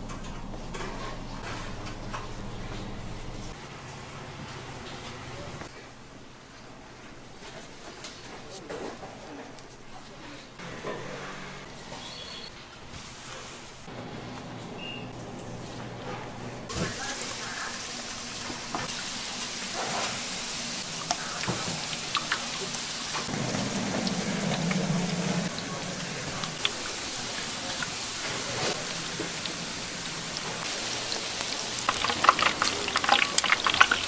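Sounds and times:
food sizzling in hot oil: 16.7 - 34.0.

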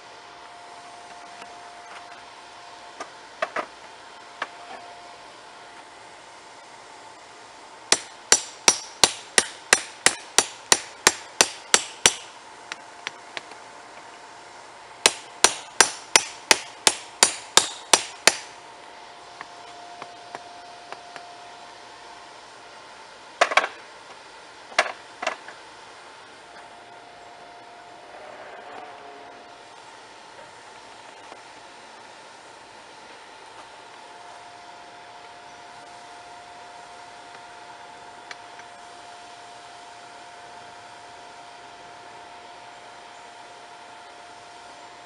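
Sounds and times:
hammer striking metal: 7.9 - 12.3, 15.0 - 18.5.

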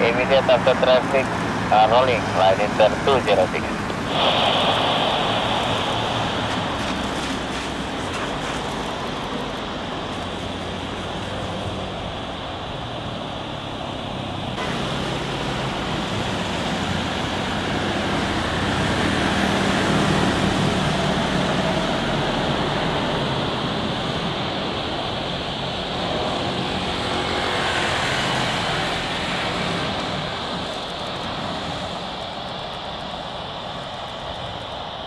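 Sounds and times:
jet airliner engine noise: 0.0 - 35.0.

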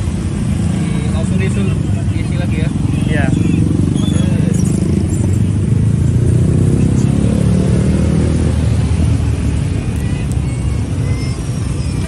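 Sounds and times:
vehicle engine rumbling: 0.0 - 12.0.

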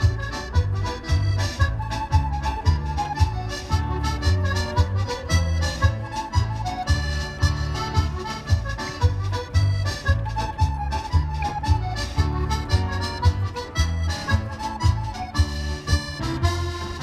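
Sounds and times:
accordion dance music: 0.0 - 17.0.

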